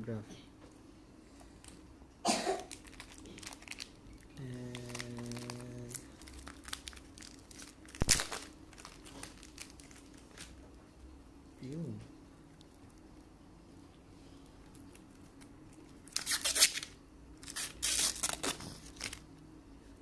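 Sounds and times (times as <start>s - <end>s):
low steady hum: 0.0s - 20.0s
plastic bag crinkling: 2.6s - 10.6s, 14.7s - 19.3s
sharp crackle: 2.7s - 10.6s.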